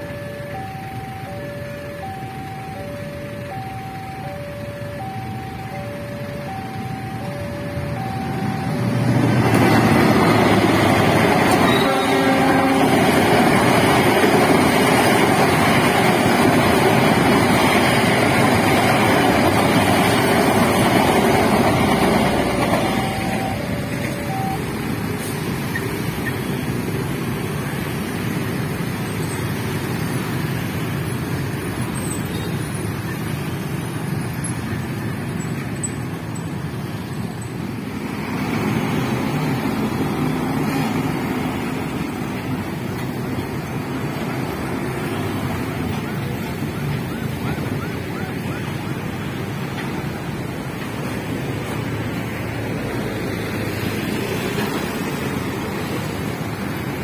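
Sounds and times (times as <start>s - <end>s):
road traffic noise: 0.0s - 57.0s
train wheels rushing on rails: 6.5s - 57.0s.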